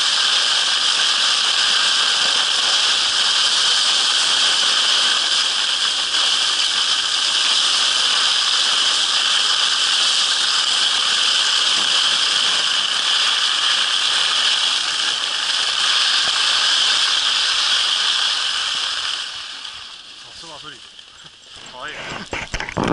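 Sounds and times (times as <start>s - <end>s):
skis hissing over snow: 0.0s - 22.9s.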